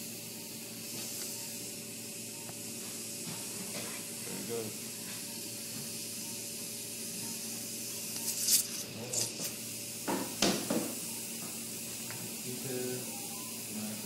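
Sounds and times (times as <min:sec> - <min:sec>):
steady hiss: 0:07.4 - 0:14.0.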